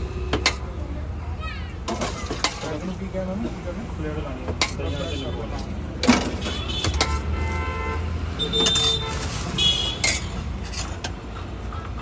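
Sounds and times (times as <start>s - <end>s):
street traffic rumbling: 0.0s - 12.0s
vehicle horns: 4.8s - 10.4s
ladle clinking against pots: 10.0s - 10.8s.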